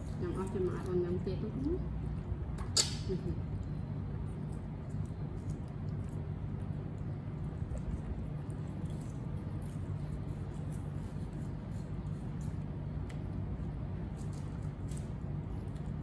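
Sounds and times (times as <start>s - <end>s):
low hum: 0.0s - 16.0s
monkeys chewing: 4.2s - 12.5s.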